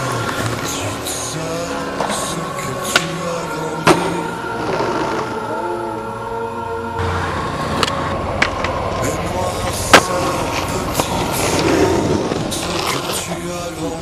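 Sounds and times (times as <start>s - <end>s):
skateboard wheels rolling on pavement: 0.0s - 5.8s, 7.0s - 14.0s
skateboard clacking on ground: 1.9s - 4.1s, 7.8s - 14.0s.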